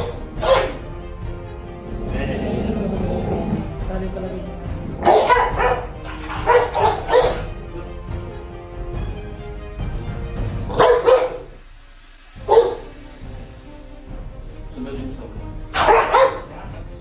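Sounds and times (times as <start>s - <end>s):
dog barking aggressively: 0.0s - 0.9s, 5.0s - 7.6s, 10.7s - 11.6s, 12.4s - 12.9s, 15.7s - 16.6s
background music: 0.0s - 17.0s.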